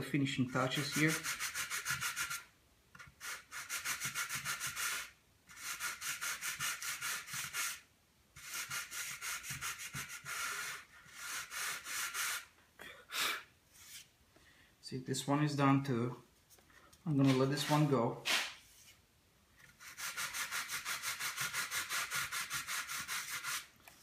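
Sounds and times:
sandpaper rubbing back and forth: 0.6s - 12.5s, 17.2s - 19.0s, 19.7s - 23.7s.

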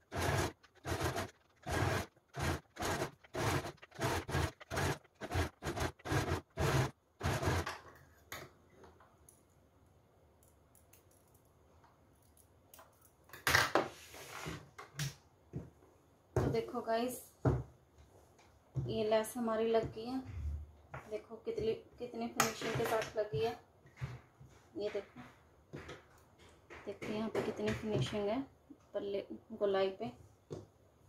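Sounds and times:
sewing machine stitching: 0.0s - 7.7s.

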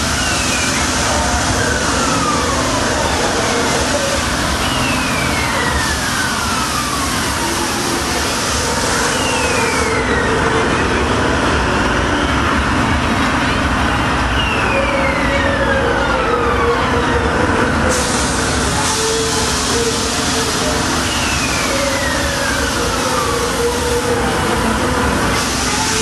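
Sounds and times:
carousel ride rumbling: 0.0s - 26.0s
falling whistle-like tone: 3.2s - 6.7s, 8.8s - 11.0s, 14.3s - 15.9s, 19.0s - 24.0s.

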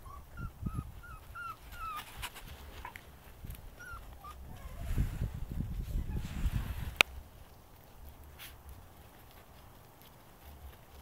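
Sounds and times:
puppy whimpering: 0.0s - 3.0s, 3.7s - 5.0s.

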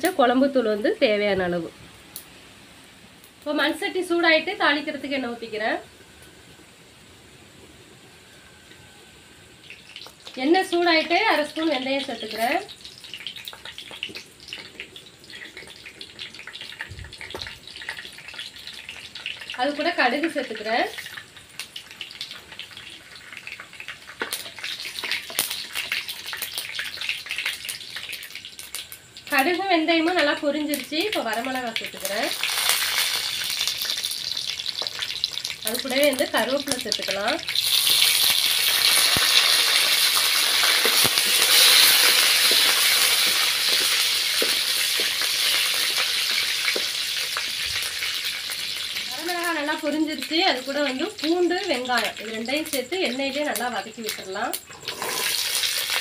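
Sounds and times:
seeds sizzling and popping in oil: 0.0s - 6.7s, 8.2s - 56.0s.

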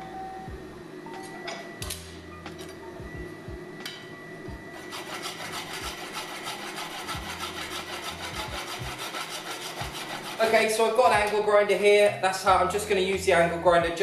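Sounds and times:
rasp scraping steel blade: 4.8s - 10.7s.

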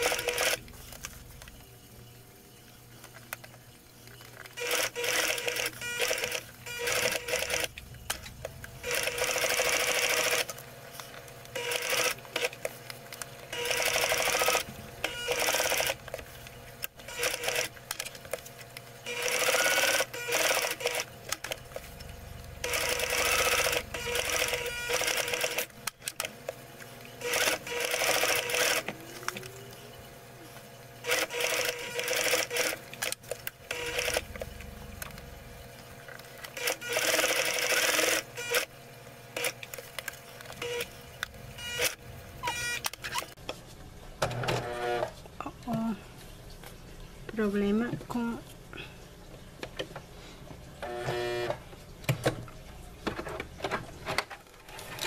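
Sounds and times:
sewing machine stitching: 22.6s - 26.2s.

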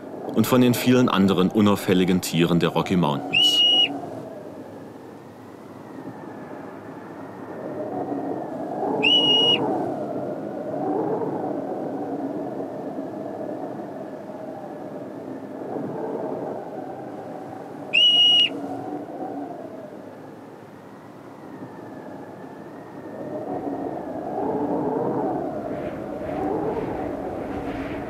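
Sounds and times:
marmot alarm whistle: 3.3s - 4.0s, 9.0s - 9.6s, 17.9s - 18.6s
wind rushing: 24.2s - 28.0s.

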